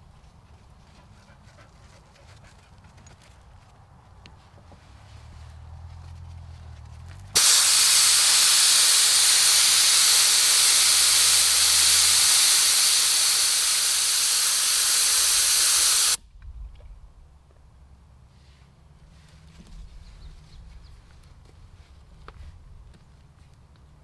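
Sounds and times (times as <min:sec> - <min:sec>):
air hissing out of tyre: 0:07.4 - 0:16.2.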